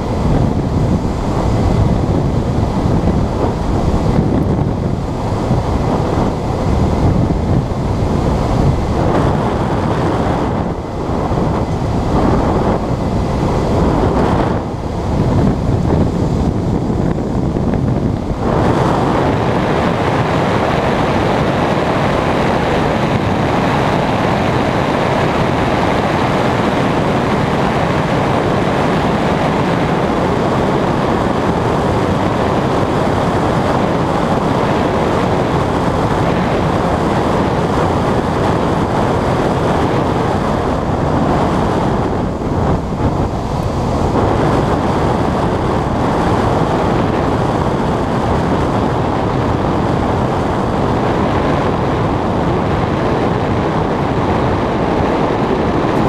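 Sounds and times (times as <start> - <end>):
air rushing past glider: 0.0 - 56.0
wind buffeting microphone: 0.0 - 56.0.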